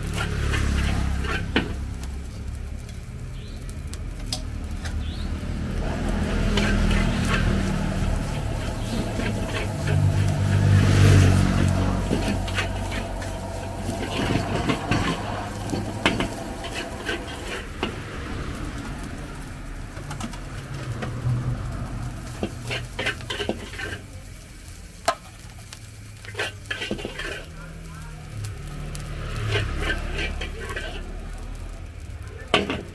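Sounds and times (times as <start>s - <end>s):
metal spatula scraping wok: 0.0s - 3.0s, 4.7s - 24.5s, 26.1s - 27.7s, 28.6s - 31.4s
frying sizzle: 0.0s - 32.9s
gas burner roar: 0.0s - 32.9s.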